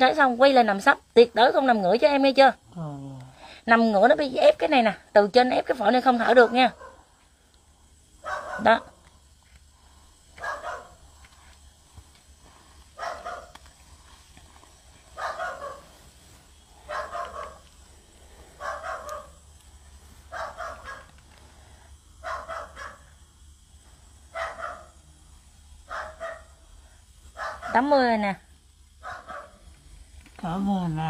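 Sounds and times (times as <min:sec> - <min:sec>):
dog barking: 0:06.4 - 0:07.1, 0:08.2 - 0:09.0, 0:10.4 - 0:11.0, 0:13.0 - 0:13.6, 0:15.2 - 0:15.9, 0:16.8 - 0:17.6, 0:18.6 - 0:19.4, 0:20.3 - 0:21.1, 0:22.2 - 0:23.1, 0:24.3 - 0:25.0, 0:25.9 - 0:26.6, 0:27.4 - 0:27.9, 0:29.0 - 0:29.6.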